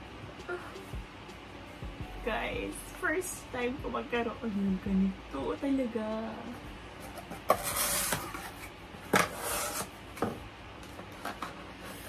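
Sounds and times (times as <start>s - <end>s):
cardboard flaps scraping and rustling: 7.1s - 10.0s.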